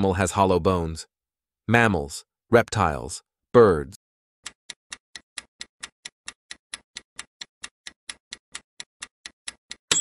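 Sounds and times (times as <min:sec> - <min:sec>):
timer ticking: 0:04.4 - 0:10.0.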